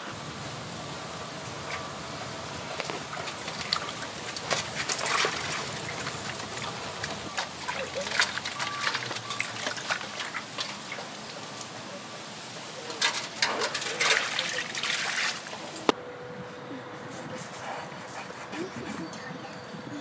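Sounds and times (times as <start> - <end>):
hands splashing water in a basin: 1.6 - 11.8, 13.0 - 15.9.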